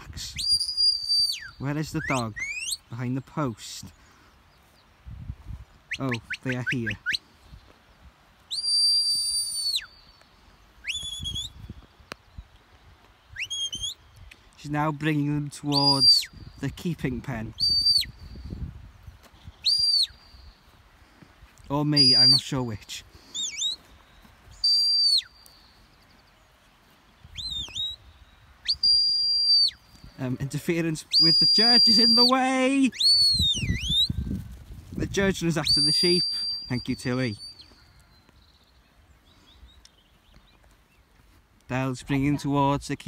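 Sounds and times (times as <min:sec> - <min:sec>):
high whistle: 0:00.2 - 0:02.7, 0:08.5 - 0:10.0, 0:10.8 - 0:11.6, 0:15.7 - 0:16.4, 0:17.6 - 0:18.2, 0:19.6 - 0:20.4, 0:22.0 - 0:22.4, 0:24.6 - 0:25.4, 0:28.6 - 0:30.2, 0:31.1 - 0:34.3, 0:35.6 - 0:37.4
short rising whistle: 0:28.7 - 0:29.8.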